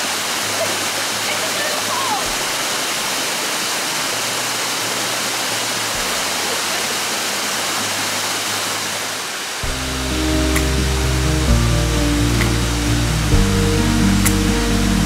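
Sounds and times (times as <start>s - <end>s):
waterfall rushing: 0.0s - 15.0s
music: 9.6s - 15.0s.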